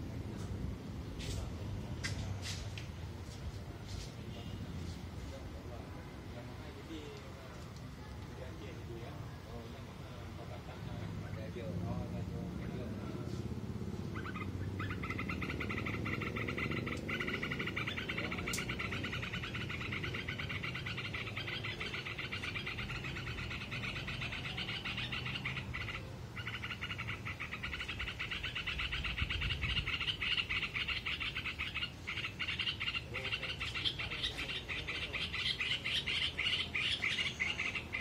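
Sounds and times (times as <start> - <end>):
chorus of pulsing animal calls: 12.6 - 38.0.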